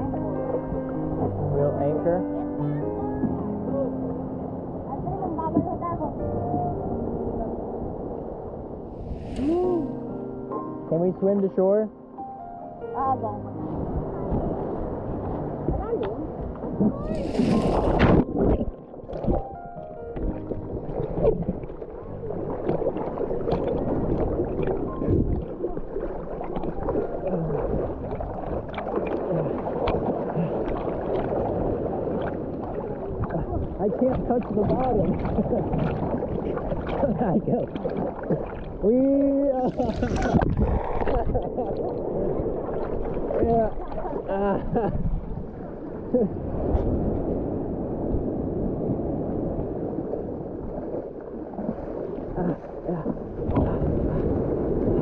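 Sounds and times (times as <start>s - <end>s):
surf washing and foaming: 0.0s - 10.2s, 13.0s - 55.0s
seawater sloshing and gurgling: 13.6s - 55.0s
small water splashes: 14.2s - 19.5s, 20.2s - 47.1s, 49.0s - 55.0s.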